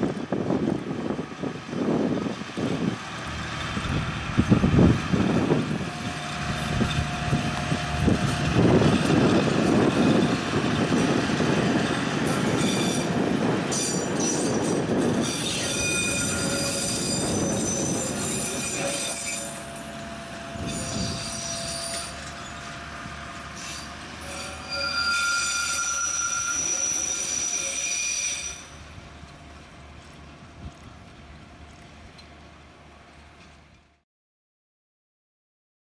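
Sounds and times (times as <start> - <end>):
wheel rumble: 0.0 - 15.2
train engine running: 0.0 - 34.0
high-pitched wheel squeal: 12.2 - 13.1, 15.2 - 19.9, 20.6 - 22.7, 23.6 - 28.8.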